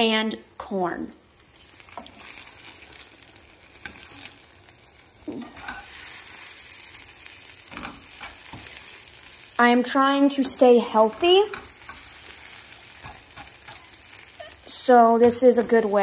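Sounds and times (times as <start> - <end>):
food sizzling in a frying pan: 0.0 - 16.0
spatula scraping a pan: 1.5 - 4.5, 5.3 - 9.2, 10.4 - 16.0.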